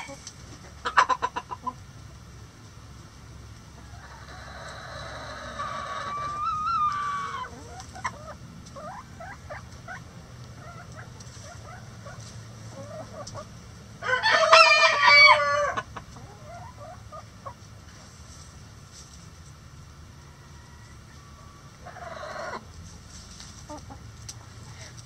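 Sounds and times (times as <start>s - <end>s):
drawn-out chicken call: 0.0s - 1.8s, 3.7s - 17.7s, 20.0s - 22.8s
chickens clucking: 0.0s - 25.0s
rooster crowing: 14.0s - 15.8s, 20.2s - 22.6s.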